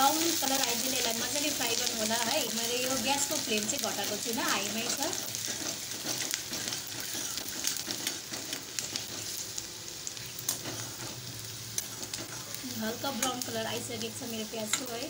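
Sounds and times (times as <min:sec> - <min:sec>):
onion sizzling in hot oil: 0:00.0 - 0:15.0
spoon scraping pan: 0:04.6 - 0:09.4.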